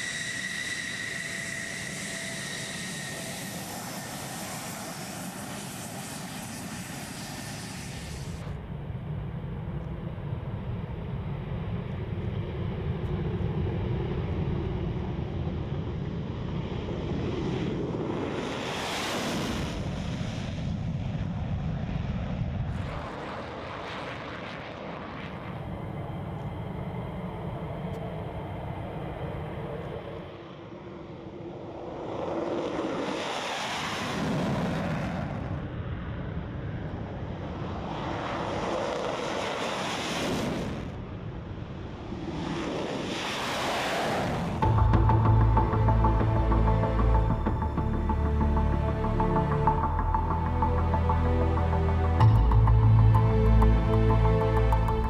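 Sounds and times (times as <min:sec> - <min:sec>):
fighter jet roar: 0:00.0 - 0:08.6, 0:22.2 - 0:45.4.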